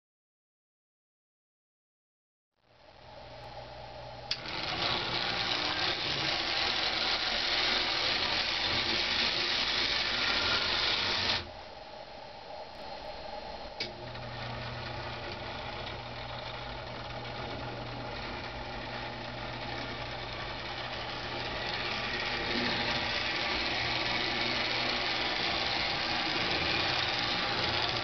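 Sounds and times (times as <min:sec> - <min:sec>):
model train motor humming: 0:04.3 - 0:11.5, 0:13.8 - 0:28.0
motor starting click: 0:04.3 - 0:11.5, 0:16.6 - 0:28.0.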